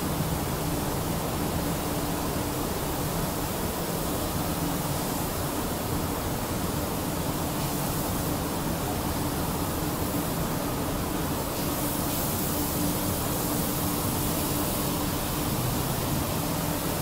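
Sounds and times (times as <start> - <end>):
rushing hiss: 6.5 - 17.0.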